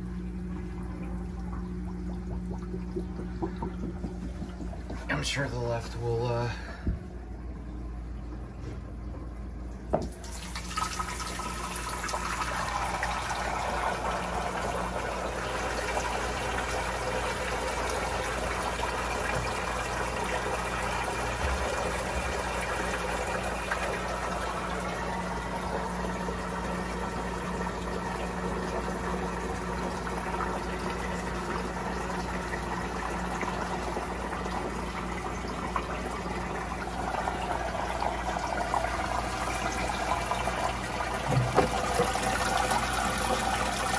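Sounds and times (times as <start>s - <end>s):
water pouring and splashing: 10.0s - 26.3s, 32.4s - 43.9s.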